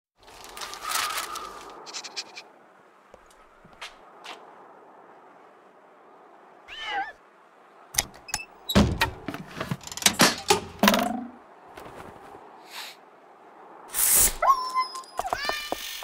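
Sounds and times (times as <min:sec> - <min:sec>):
meow-like cry: 0:06.7 - 0:07.2
mechanism clicks and squeaks: 0:08.0 - 0:10.6, 0:14.4 - 0:16.0.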